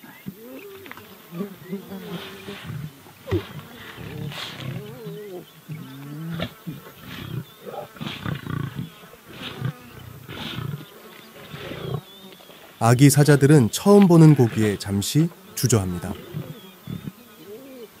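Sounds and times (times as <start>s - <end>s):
lions calling: 0.4s - 12.2s, 12.9s - 18.0s.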